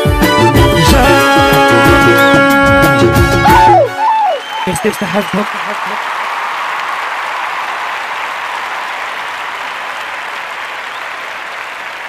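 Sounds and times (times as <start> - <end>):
applause: 4.0 - 12.0.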